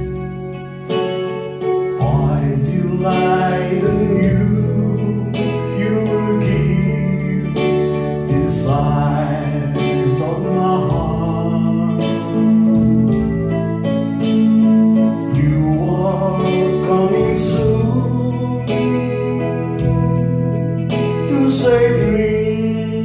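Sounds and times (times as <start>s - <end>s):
keyboard gospel ballad: 0.0s - 23.0s.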